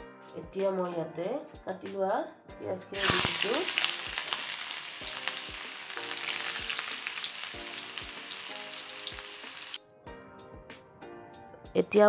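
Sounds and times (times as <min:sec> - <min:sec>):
onions sizzling in hot oil: 0:03.0 - 0:09.8.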